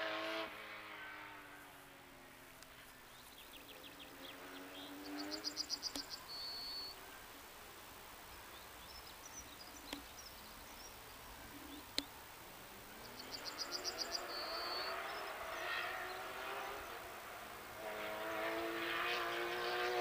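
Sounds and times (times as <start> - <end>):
distant rally car engine: 0.0 - 7.2, 11.4 - 20.0
soft bird chirps: 2.8 - 7.1, 8.3 - 12.2, 12.9 - 17.0
small bird singing: 3.1 - 7.0, 8.3 - 12.2, 12.9 - 17.0.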